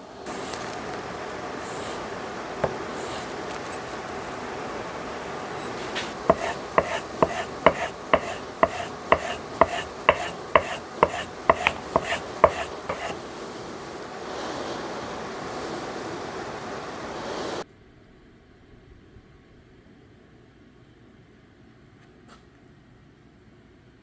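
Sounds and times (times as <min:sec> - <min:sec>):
plane iron rubbing on sharpening plate: 0:06.0 - 0:13.2.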